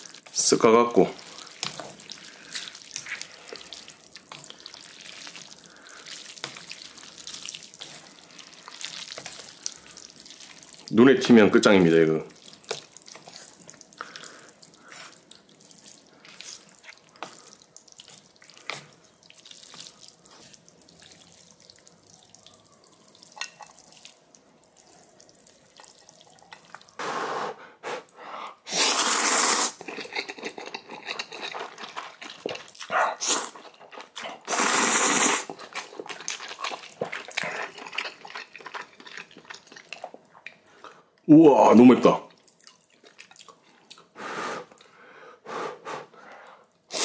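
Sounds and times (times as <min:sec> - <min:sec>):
faint water drips: 0:00.0 - 0:27.0, 0:35.6 - 0:44.1.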